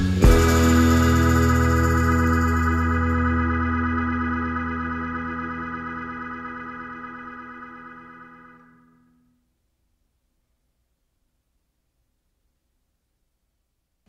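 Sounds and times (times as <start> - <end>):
held keyboard chord: 0.0 - 8.6.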